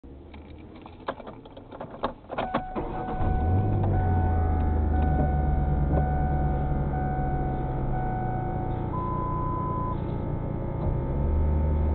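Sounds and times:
clicks and knocks inside car: 0:00.3 - 0:02.8.

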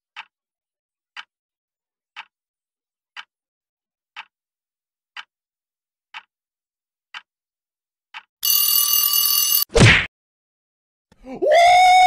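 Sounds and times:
clock ticking: 0:00.1 - 0:00.4, 0:01.1 - 0:01.3, 0:02.1 - 0:02.4, 0:03.1 - 0:03.3, 0:04.1 - 0:04.4, 0:05.1 - 0:05.3, 0:06.1 - 0:06.3, 0:08.1 - 0:09.4.

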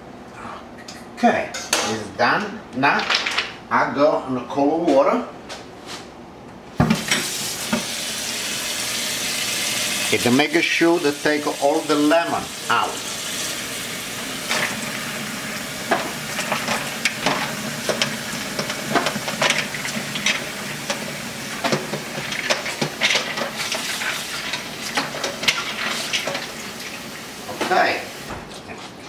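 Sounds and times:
faucet running into bowl: 0:07.0 - 0:28.3.

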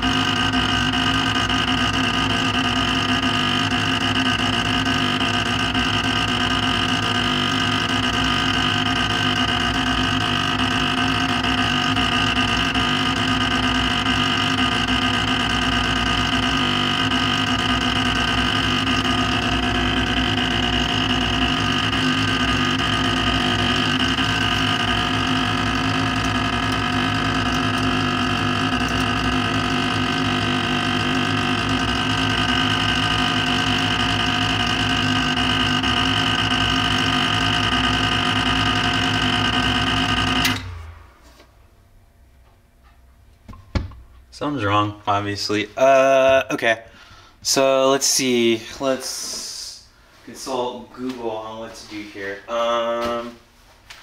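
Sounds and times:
printer motor grinding whine: 0:00.0 - 0:41.2.

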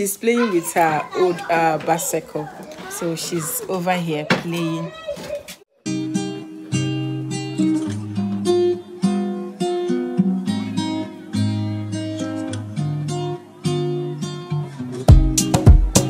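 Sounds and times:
acoustic guitar picked and strummed: 0:04.4 - 0:16.0.

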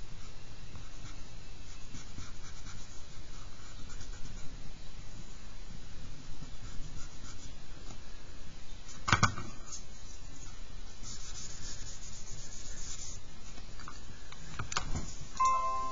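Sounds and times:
charcoal scratching on paper: 0:00.8 - 0:04.6, 0:09.7 - 0:13.2.

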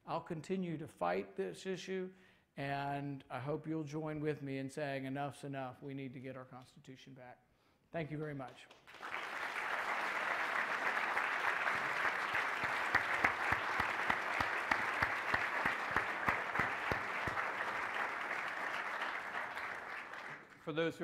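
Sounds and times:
audience applauding: 0:08.7 - 0:20.6.

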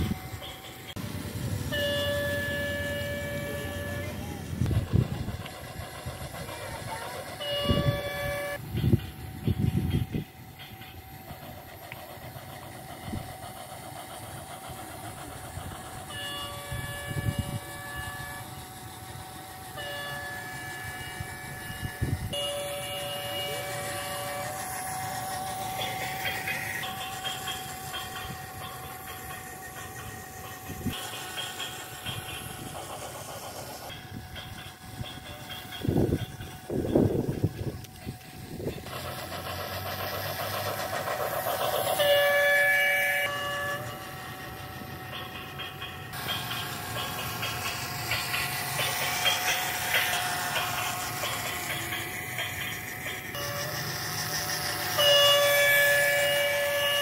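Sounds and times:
toy train running on track: 0:00.0 - 0:57.0
electronic train horn: 0:01.6 - 0:04.7, 0:07.4 - 0:08.6, 0:16.1 - 0:18.6, 0:19.7 - 0:24.7, 0:41.9 - 0:44.2, 0:54.9 - 0:57.0.

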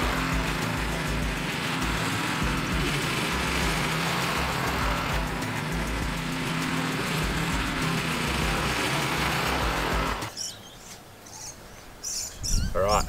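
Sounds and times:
small petrol engine running: 0:00.0 - 0:10.3
faint bird chirps: 0:10.3 - 0:13.0.

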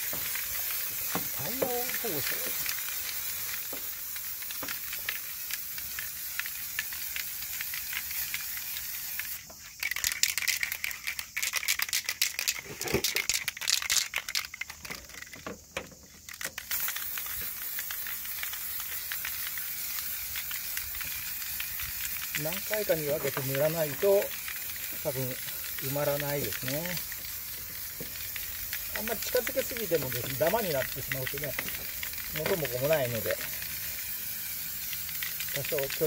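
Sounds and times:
spray can hissing: 0:00.0 - 0:36.0
spray can rattling: 0:00.0 - 0:36.0.

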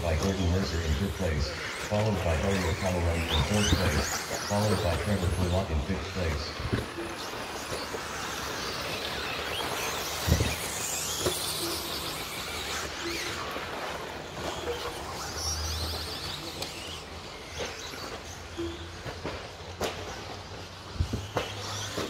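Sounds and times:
rc truck motors whining: 0:00.0 - 0:22.0.

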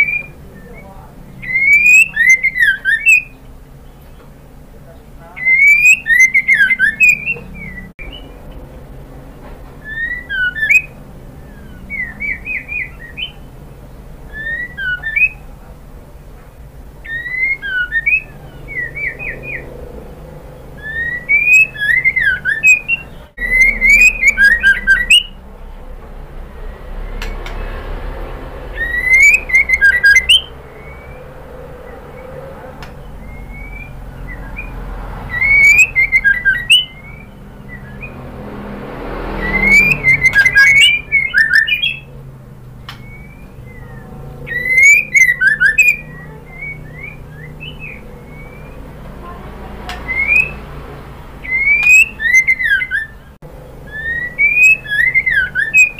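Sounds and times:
bird whistled calls: 0:00.0 - 0:04.4, 0:05.3 - 0:08.4, 0:09.8 - 0:13.6, 0:14.2 - 0:15.6, 0:17.0 - 0:25.4, 0:28.6 - 0:38.4, 0:39.0 - 0:42.2, 0:42.8 - 0:49.0, 0:49.9 - 0:50.7, 0:51.4 - 0:55.9
bird sharp ticks: 0:42.8 - 0:43.2.

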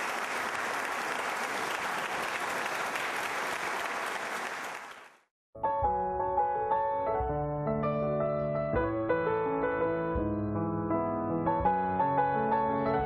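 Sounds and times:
audience applauding: 0:00.0 - 0:05.3
music: 0:05.5 - 0:13.0.

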